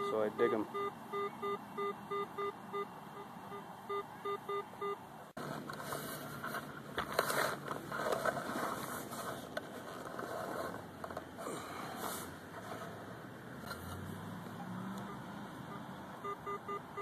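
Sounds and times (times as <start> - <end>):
metal detector short beeps: 0.0 - 5.0
digging tool scraping soil: 5.4 - 13.0.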